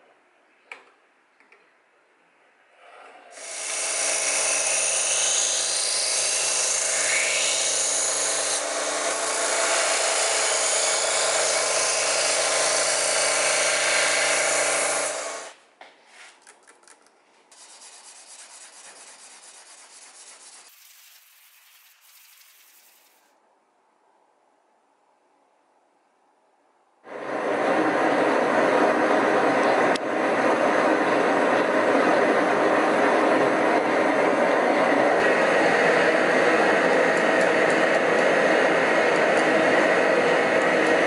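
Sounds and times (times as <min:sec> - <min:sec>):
electric grinder grinding steel: 0:03.4 - 0:15.5
hand filing on blade: 0:17.6 - 0:23.1.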